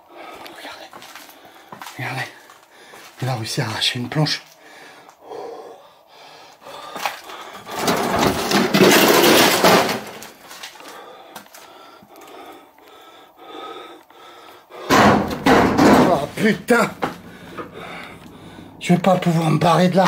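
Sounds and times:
wooden planks scraping and banging: 7.0 - 10.8, 14.9 - 20.0.

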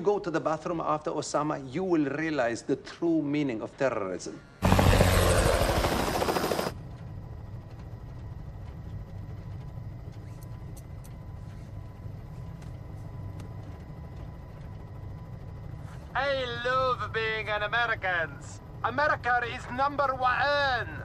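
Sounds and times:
helicopter rotor drone: 4.6 - 21.0.

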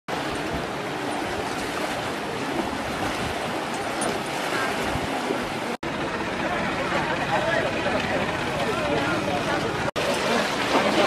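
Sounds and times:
floodwater rushing: 0.1 - 11.0
faint voices: 5.9 - 11.0.

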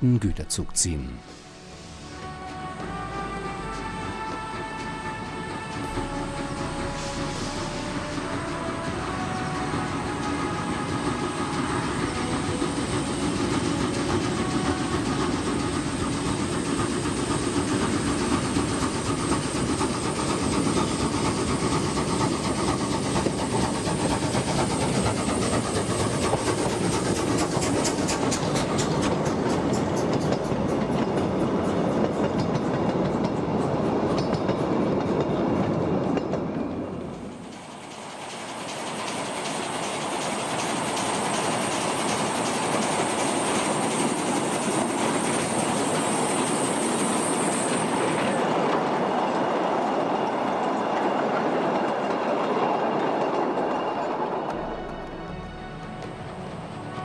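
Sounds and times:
hiss of steam: 1.2 - 2.5, 5.6 - 30.3, 37.3 - 48.7
steam locomotive chuffing: 1.4 - 57.0.

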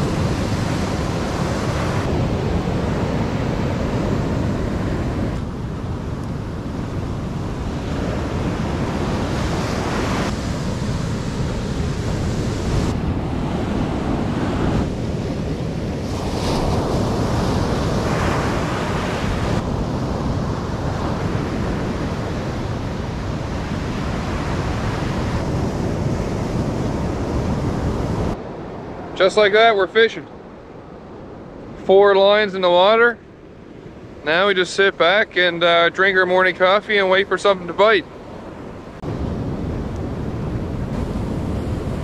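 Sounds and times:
wind on microphone: 0.0 - 29.2, 38.0 - 42.0
ocean waves breaking: 0.0 - 42.0.

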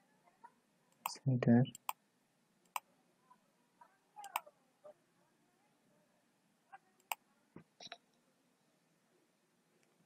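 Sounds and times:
computer mouse clicks: 0.9 - 2.0, 2.6 - 2.9, 4.2 - 4.4, 7.0 - 7.2.

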